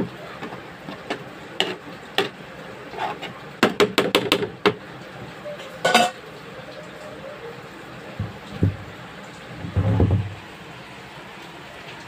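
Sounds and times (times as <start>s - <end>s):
kitchen utensils knocking: 5.8s - 6.2s.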